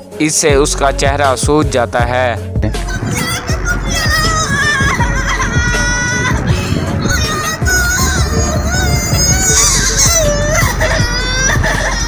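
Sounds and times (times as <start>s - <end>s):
background music: 0.0s - 12.0s
woman crying out in pain: 9.9s - 12.0s.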